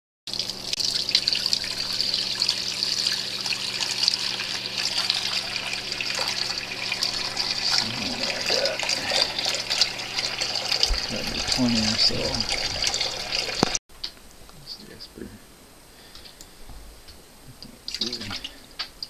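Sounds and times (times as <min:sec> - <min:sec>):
faucet water running into sink: 0:00.3 - 0:13.8, 0:17.9 - 0:18.5.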